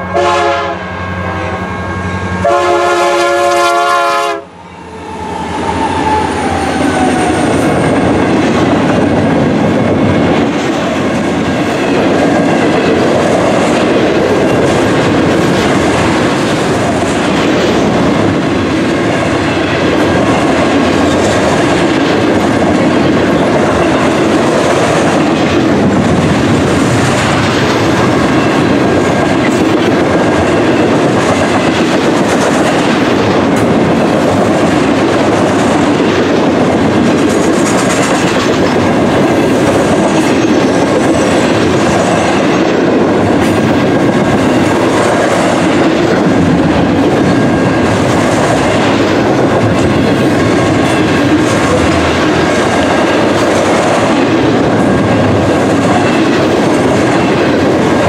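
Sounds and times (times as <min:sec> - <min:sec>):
locomotive horn: 0:00.0 - 0:04.6
diesel locomotives passing: 0:00.0 - 0:58.0
train wheels clattering over rail joints: 0:07.9 - 0:58.0.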